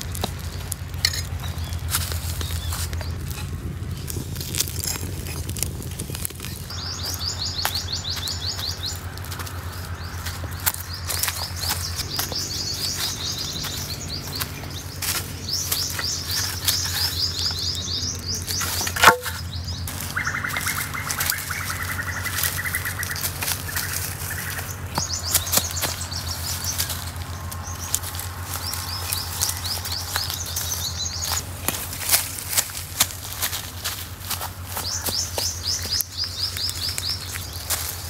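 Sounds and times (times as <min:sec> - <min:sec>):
birds chattering: 0:00.0 - 0:38.0
dry twigs crackling and snapping: 0:00.0 - 0:38.0
steady low hum: 0:00.0 - 0:38.0
bird trill: 0:06.5 - 0:32.1, 0:34.4 - 0:38.0.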